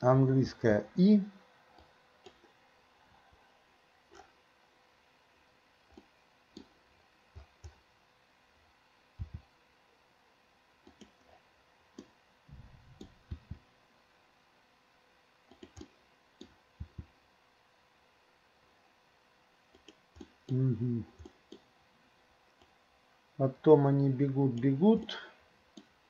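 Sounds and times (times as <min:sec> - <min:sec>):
mouse and keyboard clicks: 0:15.5 - 0:17.1, 0:19.7 - 0:20.6.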